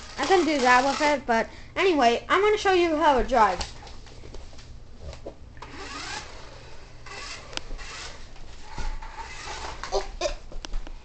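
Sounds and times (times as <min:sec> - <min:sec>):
toy car motor whirring: 0:00.0 - 0:01.2, 0:05.6 - 0:08.3, 0:08.9 - 0:10.0.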